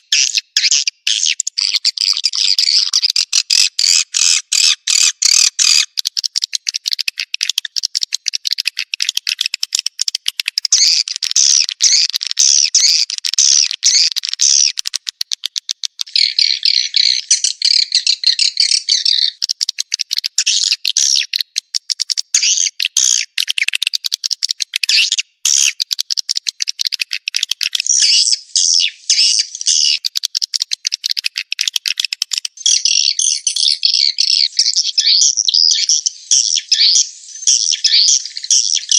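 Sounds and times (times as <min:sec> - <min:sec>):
swiftlets chirping and twittering: 0:00.0 - 0:38.9
rapid clicks: 0:05.6 - 0:16.1, 0:19.4 - 0:20.4, 0:25.7 - 0:27.8, 0:30.0 - 0:32.6.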